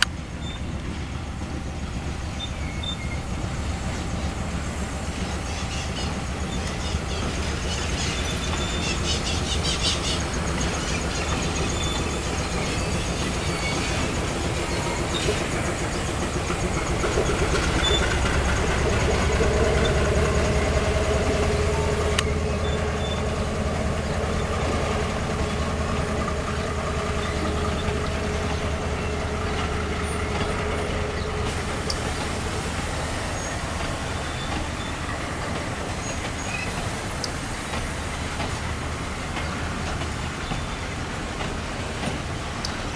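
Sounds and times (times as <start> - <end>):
locomotive engines droning: 0.0 - 42.9
wagons rolling on rails: 0.0 - 42.9
humming whine: 19.4 - 33.8.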